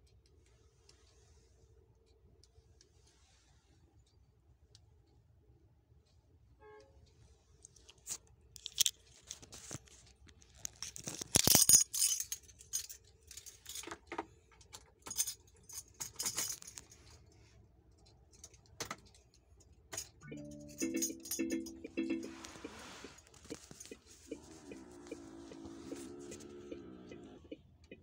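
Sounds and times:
clicks and rattles: 8.0s - 17.2s
faint low hum: 19.2s - 28.0s.

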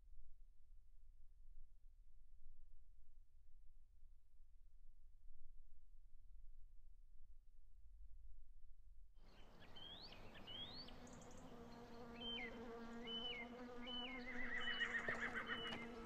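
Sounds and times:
short high whistling calls: 13.1s - 16.0s
horse whinnying: 14.3s - 16.0s.

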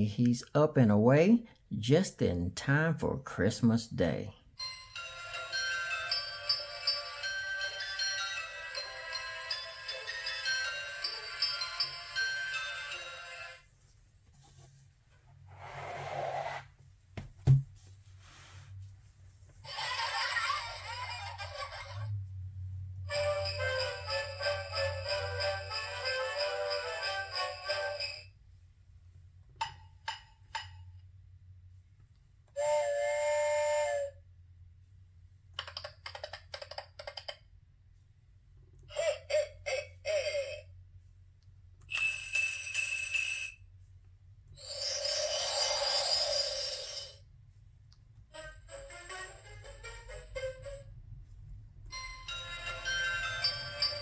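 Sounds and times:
tinkly electronic tune: 52.0s - 54.0s.

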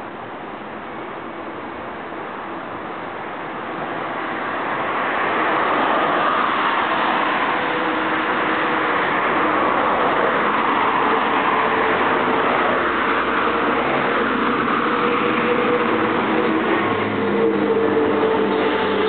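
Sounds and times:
cars driving past: 3.4s - 19.0s.

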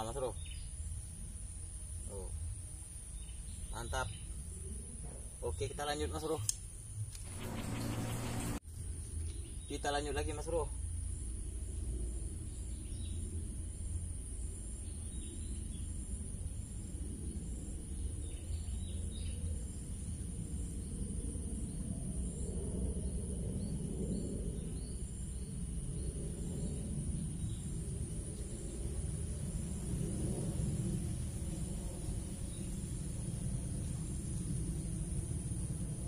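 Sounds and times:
insect drone: 0.0s - 36.0s
low rumble: 7.2s - 8.6s
faint bird chirps: 7.3s - 8.6s.

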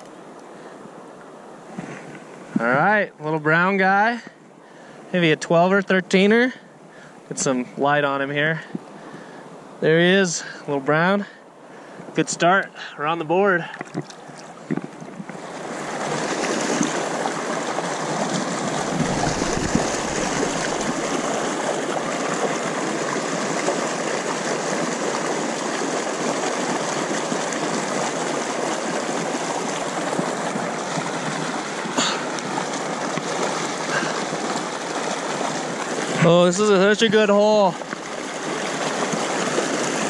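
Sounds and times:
river water rushing over rocks: 13.1s - 40.0s
low rumble: 18.8s - 21.2s.

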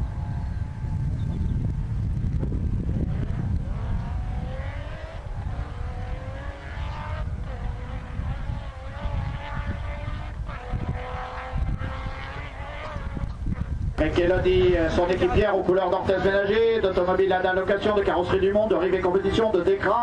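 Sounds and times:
heavy low rumble: 0.0s - 19.5s
truck engine revving: 2.4s - 18.3s.

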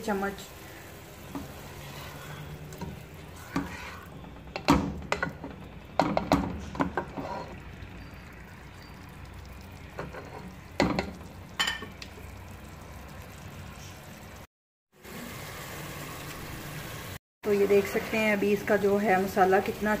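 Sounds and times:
curry sizzling: 0.0s - 20.0s
spatula scraping pot: 1.2s - 4.4s, 6.6s - 7.7s, 10.0s - 10.6s.

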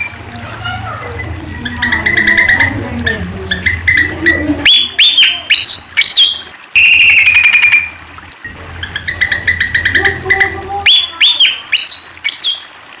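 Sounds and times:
bird chirps and whistles: 3.6s - 8.0s, 10.8s - 12.6s.

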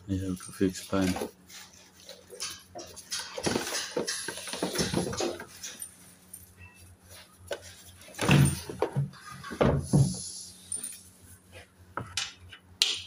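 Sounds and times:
metallic clinks and knocks: 0.2s - 9.0s.

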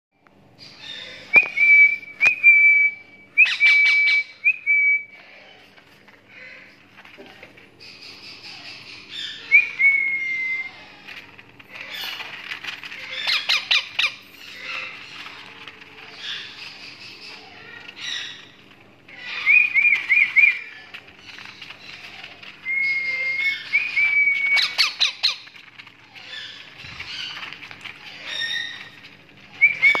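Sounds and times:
parakeet chicks squawking: 0.5s - 2.4s, 3.0s - 30.0s
whistled chirps: 1.3s - 5.2s, 9.2s - 10.9s, 19.3s - 20.6s, 22.6s - 24.9s, 29.5s - 30.0s.

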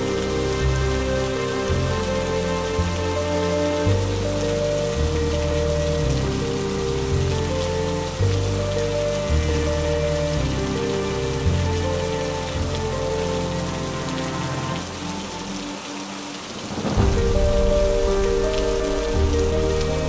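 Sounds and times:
rain on window glass: 0.0s - 20.0s
soft music of held notes: 0.0s - 20.0s
low thunder rumble: 16.6s - 20.0s.

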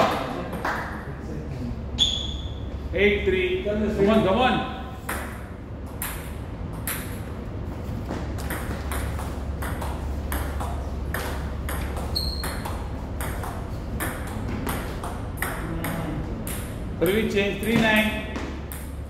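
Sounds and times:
brief high squeak: 2.0s - 2.7s, 12.1s - 12.6s
table tennis ball clicking: 8.4s - 16.8s.

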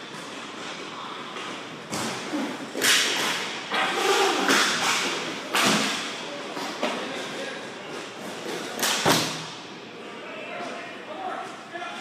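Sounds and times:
skate wheels scraping on floor: 0.0s - 8.8s
hockey sticks and puck clacking: 0.1s - 9.4s.

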